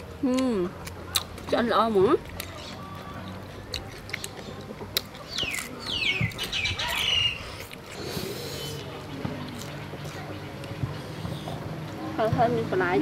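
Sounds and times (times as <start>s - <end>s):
crisp chicken skin crunching: 3.6s - 7.2s.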